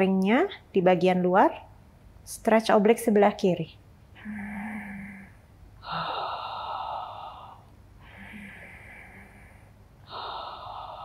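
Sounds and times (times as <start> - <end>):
woman breathing deeply: 4.2 - 11.0.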